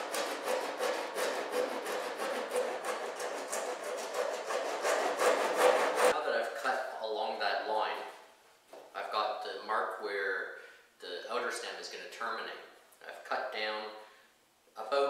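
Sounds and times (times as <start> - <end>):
hand tool shaving wood: 0.0 - 6.2.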